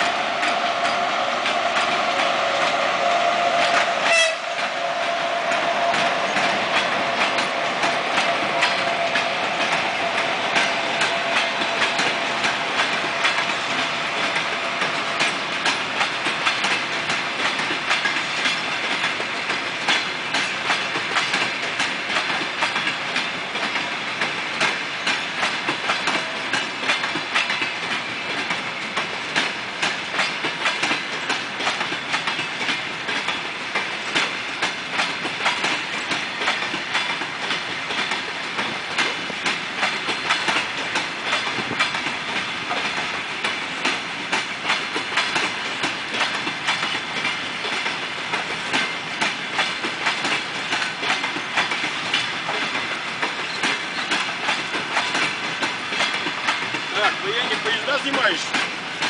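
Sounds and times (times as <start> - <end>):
train rolling noise: 0.0 - 59.0
train wheels clattering over rail joints: 0.0 - 59.0.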